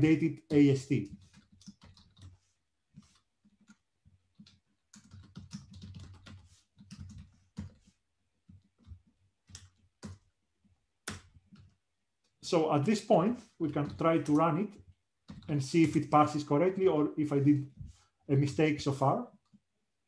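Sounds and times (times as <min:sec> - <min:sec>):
faint keyboard typing: 0:00.0 - 0:19.8.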